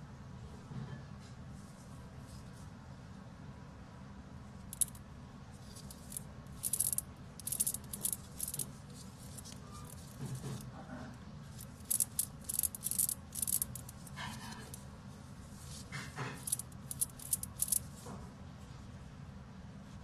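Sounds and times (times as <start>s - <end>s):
ball bearing metallic rattles: 4.7s - 5.0s, 5.6s - 10.6s, 11.5s - 14.8s, 15.7s - 17.9s.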